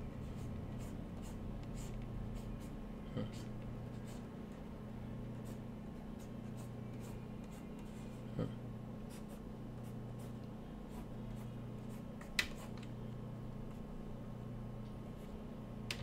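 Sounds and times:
steady low hum: 0:00.0 - 0:16.0
stylus scratching on tablet: 0:00.2 - 0:04.2.

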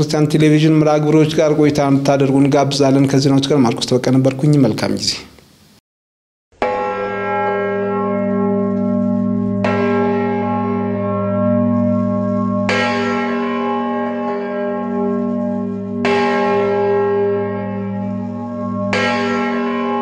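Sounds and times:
church bell tolling: 0:06.6 - 0:20.0.

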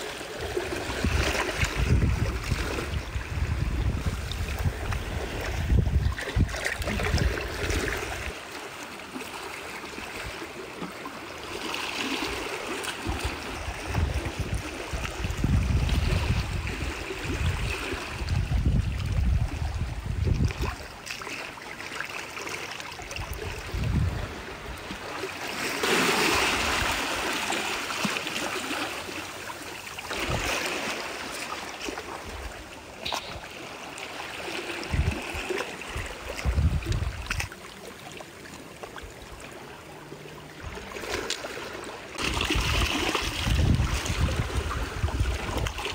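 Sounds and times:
wind rumbling on microphone: 0:00.0 - 0:08.4, 0:13.0 - 0:21.0, 0:23.0 - 0:25.1, 0:30.1 - 0:30.7, 0:34.7 - 0:37.5, 0:42.2 - 0:45.9
water splashing and trickling: 0:00.0 - 0:45.9.

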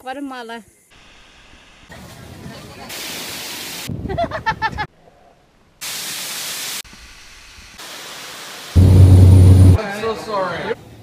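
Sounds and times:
loud low hum: 0:08.8 - 0:09.8.

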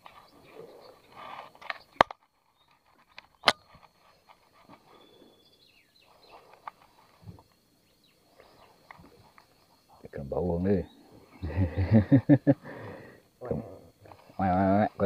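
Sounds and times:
faint rustling: 0:00.0 - 0:10.2
faint high-pitched hum: 0:00.0 - 0:15.0.

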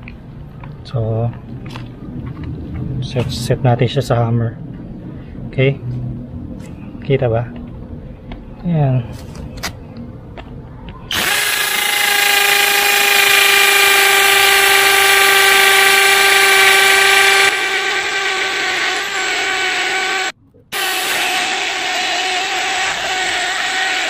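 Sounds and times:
impact drill boring into concrete: 0:11.1 - 0:24.0.

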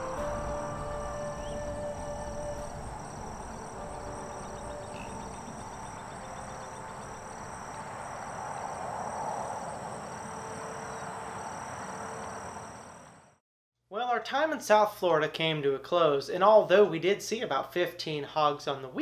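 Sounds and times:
insects trilling in grass: 0:00.8 - 0:13.0.

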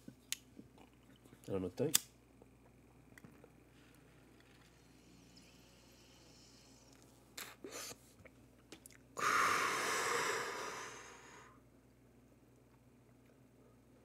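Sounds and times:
long loud breath: 0:09.2 - 0:11.6.

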